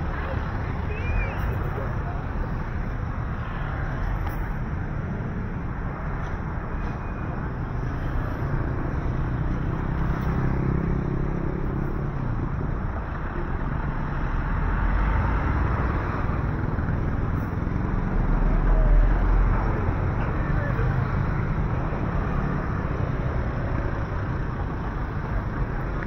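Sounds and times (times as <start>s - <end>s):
deep vehicle rumble: 0.0s - 26.0s
road traffic passing: 0.0s - 26.0s.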